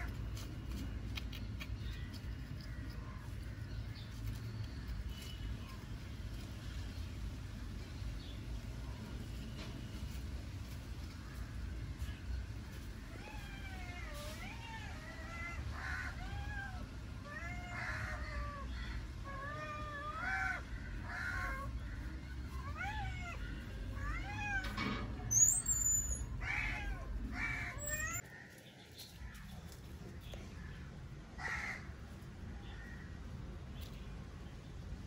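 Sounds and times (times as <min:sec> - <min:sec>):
kitten high chirp: 0:22.5 - 0:27.0.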